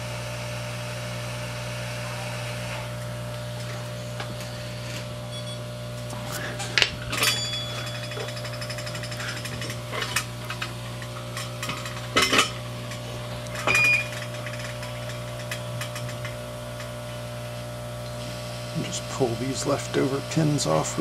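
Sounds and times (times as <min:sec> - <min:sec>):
electrical hum: 0:00.0 - 0:21.0
short electronic beep: 0:05.3 - 0:05.7, 0:13.7 - 0:14.1
metal tools clinking on bench: 0:06.8 - 0:16.4.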